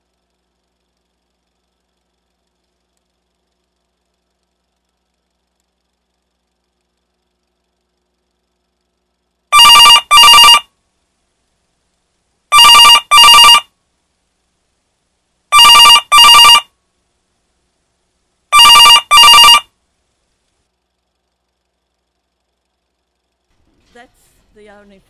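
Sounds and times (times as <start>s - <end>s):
telephone bell ringing: 9.5s - 10.7s, 12.5s - 13.7s, 15.5s - 16.7s, 18.5s - 19.7s.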